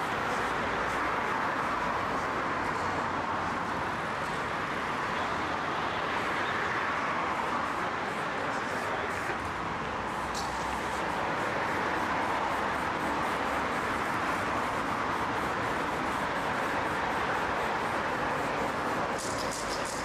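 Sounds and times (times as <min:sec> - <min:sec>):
passing traffic: 0:00.0 - 0:20.0
spray can hiss: 0:18.4 - 0:20.0.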